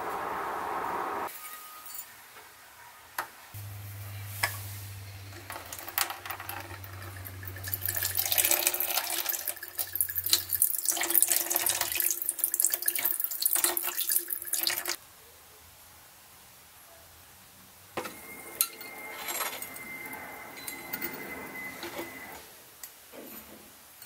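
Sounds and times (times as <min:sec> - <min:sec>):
liquid pouring into plastic tub: 0:05.5 - 0:15.0.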